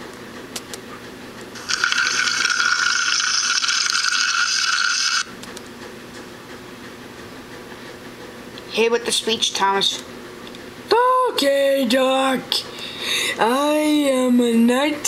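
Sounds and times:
toy train motor whirring: 1.6s - 5.3s.

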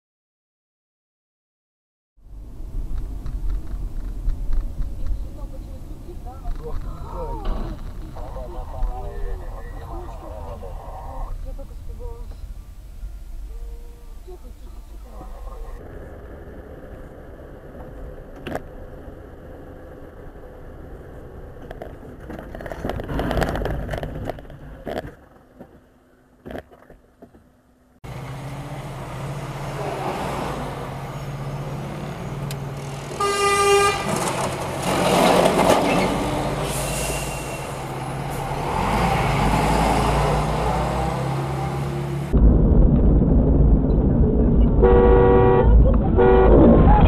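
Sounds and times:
engine hum: 2.2s - 47.0s
traffic noise: 2.2s - 47.0s
tyre and road noise on wet road: 2.2s - 47.0s
vehicle horn: 33.1s - 34.3s, 44.8s - 47.0s.

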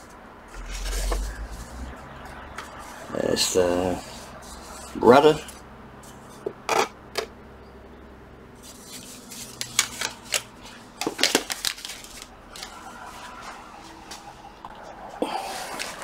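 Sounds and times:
plastic wrapping rustling: 8.6s - 13.4s.

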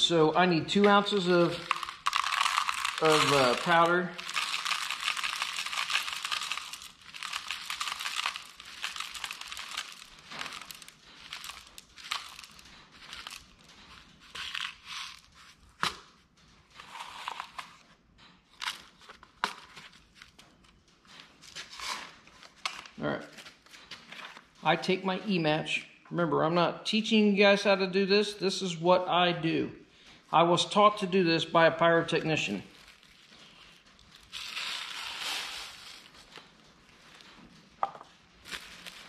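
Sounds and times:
paper cups rustling and crinkling: 0.0s - 17.9s, 18.5s - 24.9s, 32.1s - 39.0s.

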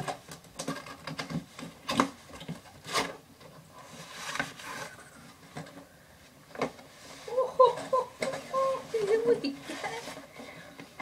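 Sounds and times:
box scraping rustle: 3.8s - 5.6s, 8.8s - 10.6s.

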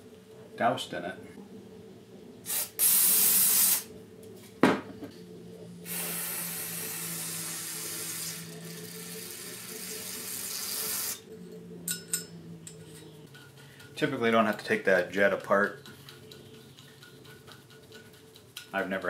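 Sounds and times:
aerosol spraying: 2.5s - 3.9s, 5.9s - 11.2s.

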